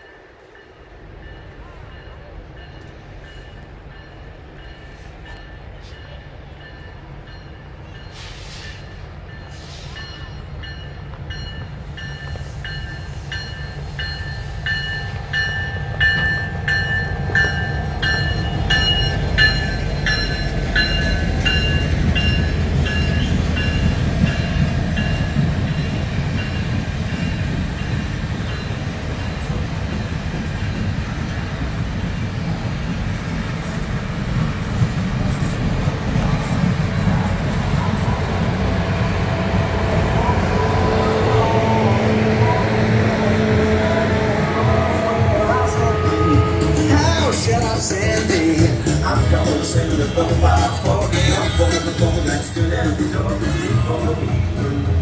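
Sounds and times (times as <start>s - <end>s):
train rumbling past: 0.0s - 55.0s
bell ringing: 0.6s - 27.4s.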